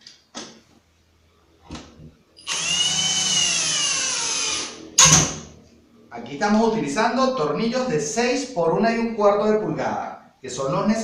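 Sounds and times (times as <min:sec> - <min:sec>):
cordless drill driving screw: 0:02.4 - 0:04.8.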